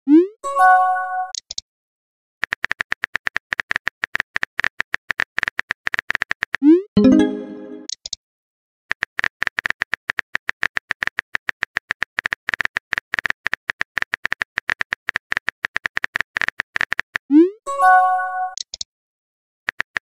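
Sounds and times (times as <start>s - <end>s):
keyboard typing clicks: 18.5s - 18.9s.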